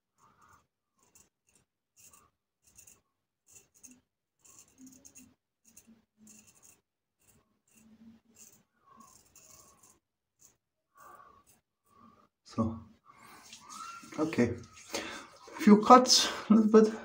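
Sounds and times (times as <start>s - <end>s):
razor scraping stubble: 1.0s - 12.1s, 13.2s - 15.6s.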